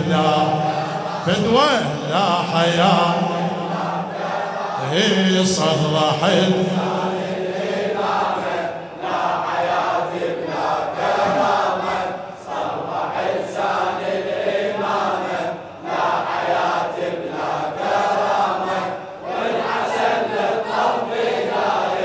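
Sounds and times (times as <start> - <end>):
men chanting in unison: 0.0 - 22.0.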